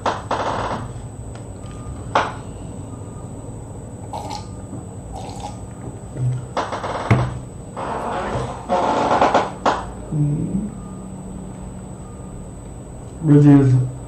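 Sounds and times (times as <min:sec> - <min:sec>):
low background hum: 0:00.0 - 0:14.0
person sipping a drink: 0:04.1 - 0:04.5, 0:05.2 - 0:05.6.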